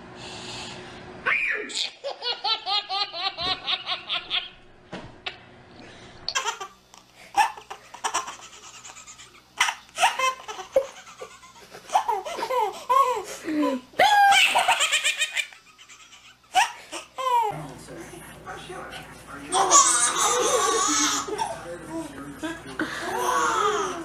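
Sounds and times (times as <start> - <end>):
babies laughing: 1.8 - 4.6, 6.3 - 17.5, 19.5 - 21.7, 22.6 - 24.0
high-pitched squealing laugh: 14.0 - 16.8.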